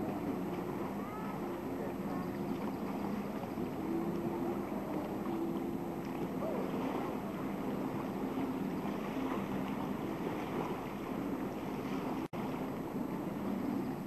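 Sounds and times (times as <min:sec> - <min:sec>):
lake water lapping: 0:00.0 - 0:14.0.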